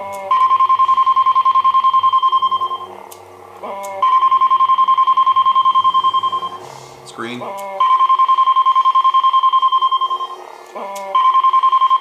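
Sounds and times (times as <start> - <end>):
pulsing high electronic tone: 0.3 - 3.0, 3.6 - 6.8, 7.5 - 12.0
stepped electronic chirp: 4.0 - 6.6.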